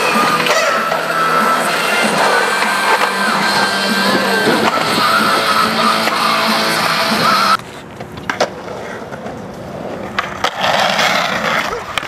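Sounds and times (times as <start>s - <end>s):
guitar background music: 0.0s - 7.6s
skateboard clacks: 0.0s - 12.0s
skateboard wheels rolling on concrete: 0.0s - 12.0s.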